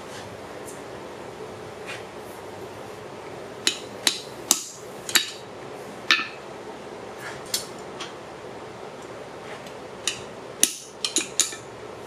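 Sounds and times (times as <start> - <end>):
hammer striking metal on anvil: 6.1 - 6.4.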